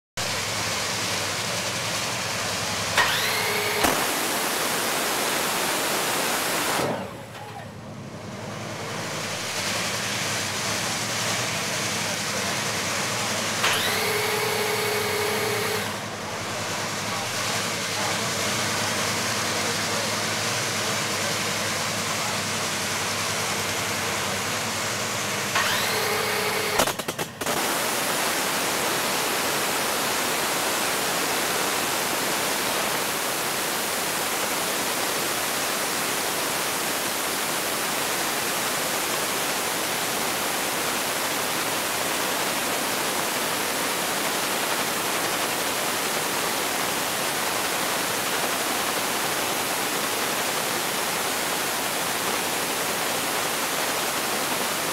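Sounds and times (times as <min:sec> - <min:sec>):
loud dragster engine idling: 0:00.2 - 0:33.6
rising engine whine: 0:00.4 - 0:27.0
engine firing cracks: 0:00.5 - 0:28.7.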